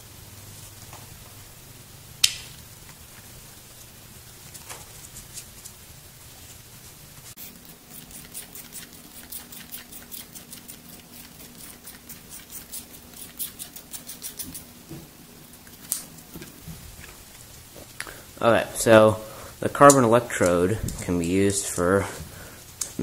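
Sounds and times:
screwdriver scraping battery electrode: 7.4 - 14.7.

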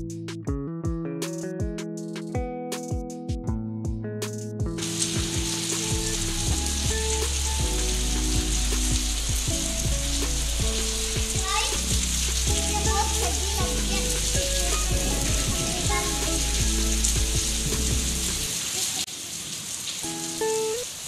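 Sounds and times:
music of held notes: 4.7 - 18.5
heavy rain hissing: 4.8 - 21.0.

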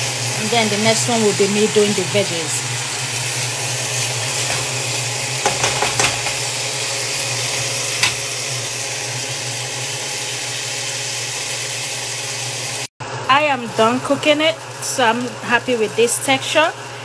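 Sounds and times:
chicken sizzling in a pan: 0.0 - 17.0
spatula scraping and knocking pan: 4.2 - 6.8, 7.4 - 8.4.

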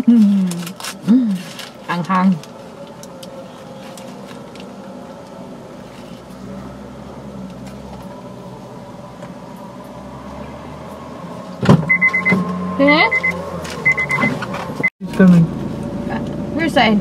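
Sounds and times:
car engine hum inside cabin: 0.0 - 17.0.

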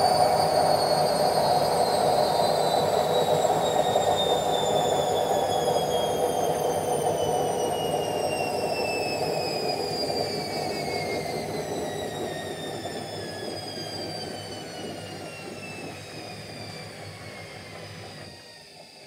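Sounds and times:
washing machine motor whine: 0.0 - 19.0.

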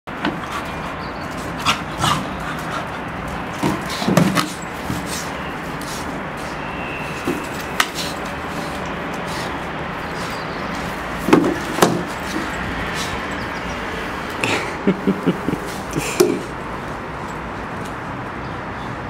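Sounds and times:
puppy vocalisation: 1.5 - 3.1
knocks and scrapes of bottle: 11.2 - 12.6.

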